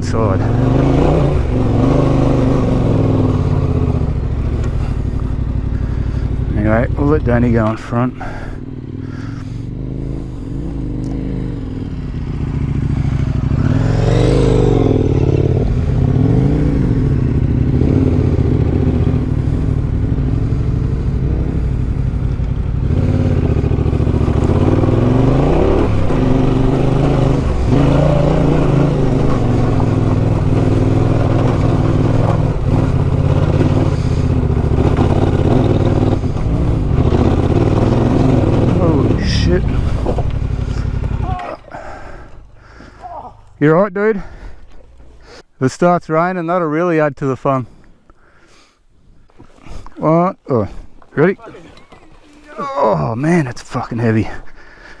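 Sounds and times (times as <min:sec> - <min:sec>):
motorcycle engine revving: 0:00.0 - 0:43.2.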